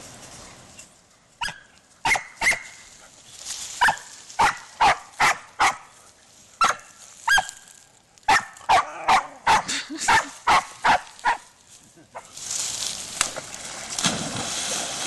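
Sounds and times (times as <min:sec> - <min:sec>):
dog barking: 0:01.4 - 0:02.7, 0:03.8 - 0:05.9, 0:06.6 - 0:07.5, 0:08.3 - 0:11.5.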